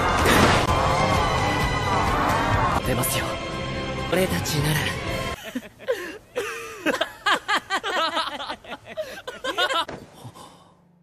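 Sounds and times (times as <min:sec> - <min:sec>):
men laughing: 0:05.3 - 0:09.9.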